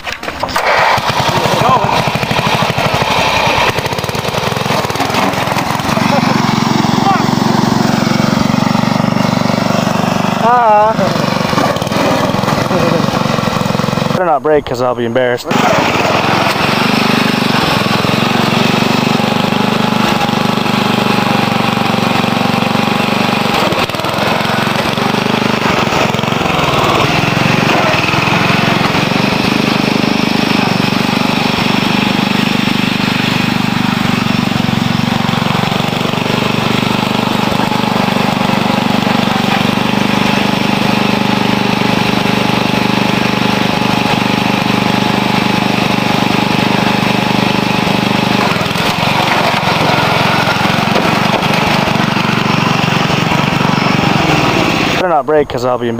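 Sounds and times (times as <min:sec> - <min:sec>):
lawn tractor engine running: 0:00.0 - 0:55.1.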